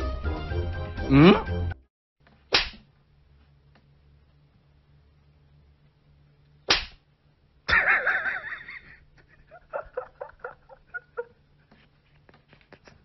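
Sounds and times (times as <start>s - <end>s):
sharp slap-like crack: 2.5s - 2.9s, 6.7s - 7.0s.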